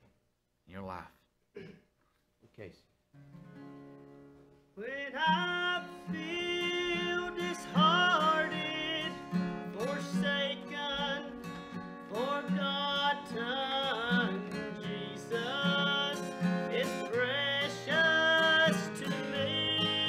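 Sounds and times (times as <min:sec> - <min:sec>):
strummed acoustic guitar: 0:03.1 - 0:20.0
man singing: 0:04.8 - 0:20.0.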